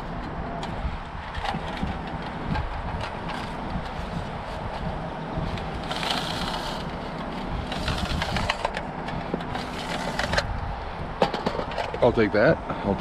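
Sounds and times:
wind rumbling on microphone: 0:00.0 - 0:13.0.

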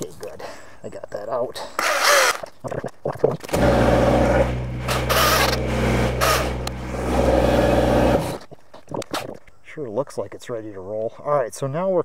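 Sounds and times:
diesel tractor engine running: 0:03.6 - 0:08.4.

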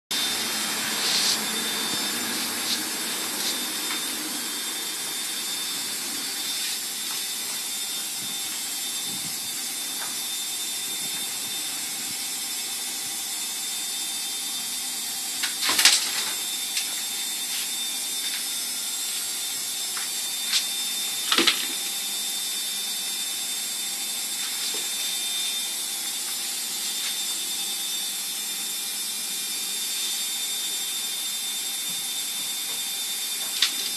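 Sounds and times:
high-pitched whine: 0:00.1 - 0:33.9
hiss: 0:00.8 - 0:03.8.

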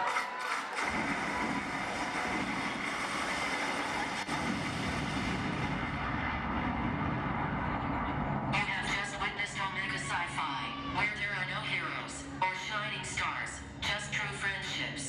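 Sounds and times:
crowd cheering and applauding: 0:00.0 - 0:08.4.

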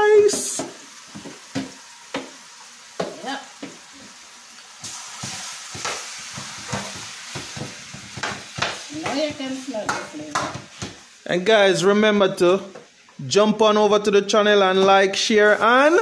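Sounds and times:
chicken sizzling in hot oil: 0:00.0 - 0:11.5, 0:15.1 - 0:16.0.

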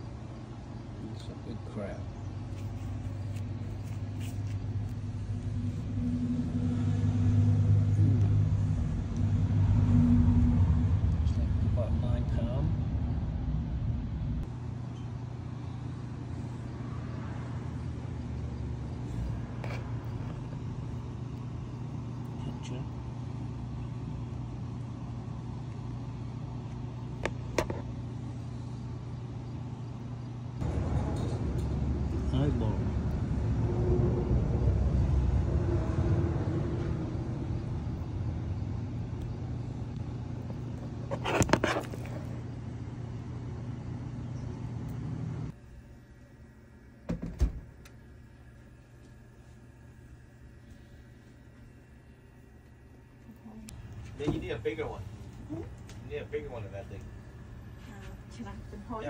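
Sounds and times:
low mechanical hum: 0:00.0 - 0:59.0
loud rumbling noise: 0:05.1 - 0:14.5, 0:30.6 - 0:39.0.

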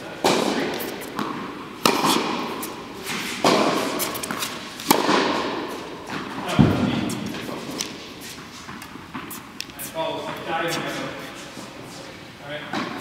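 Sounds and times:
racket striking tennis ball: 0:00.2 - 0:09.6.

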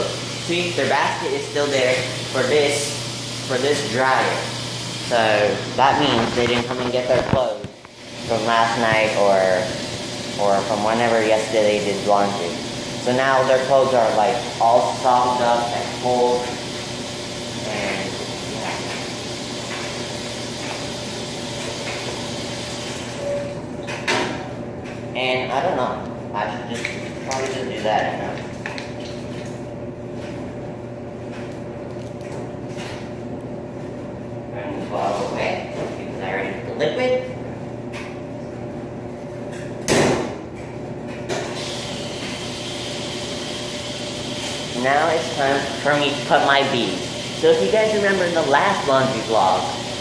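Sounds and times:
laundry machines hiss and hum: 0:00.0 - 0:50.0.

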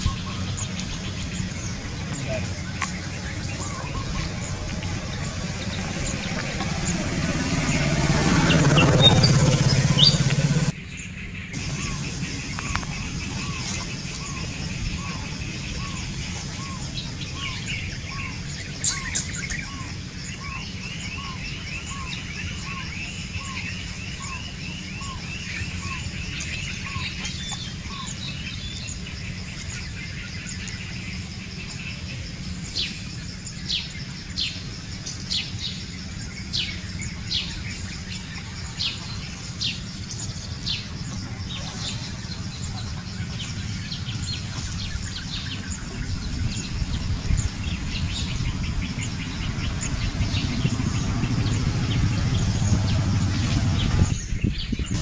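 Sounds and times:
high bird trill: 0:00.0 - 0:33.1
low outdoor rumble: 0:00.0 - 0:55.0.

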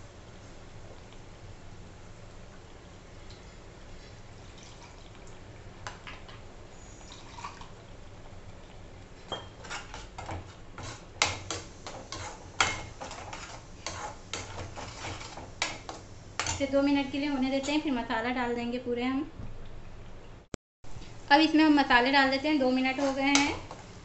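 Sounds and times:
sauce hissing and popping: 0:08.5 - 0:16.4
spatula scraping a steel pan: 0:09.5 - 0:16.6.

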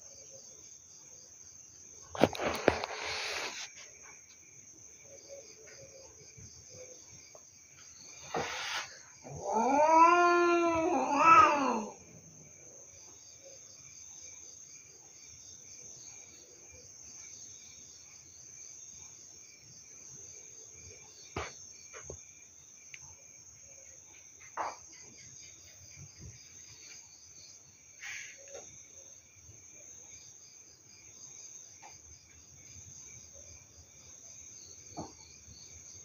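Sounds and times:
crickets chirping: 0:00.0 - 0:36.0
steady high hiss: 0:02.2 - 0:04.1, 0:08.0 - 0:09.2
cat yowling: 0:08.4 - 0:12.0.

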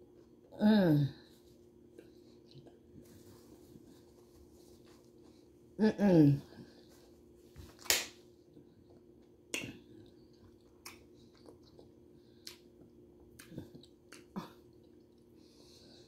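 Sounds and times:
faint chewing: 0:01.9 - 0:05.5, 0:08.4 - 0:16.0.

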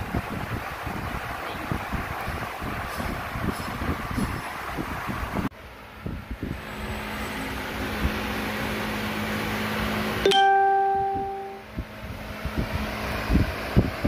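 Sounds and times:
bell-like ding: 0:10.3 - 0:11.6.

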